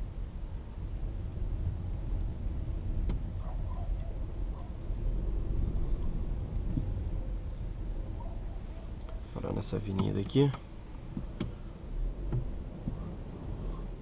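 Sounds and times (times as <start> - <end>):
car engine and road rumble: 0.0 - 14.0.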